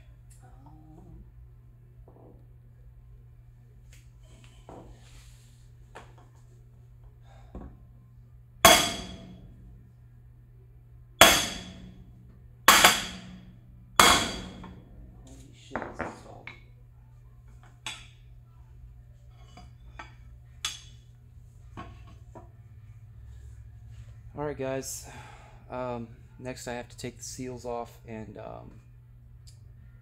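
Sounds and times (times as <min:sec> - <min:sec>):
hammer blows on metal ringing: 0:08.6 - 0:09.4, 0:11.2 - 0:12.0.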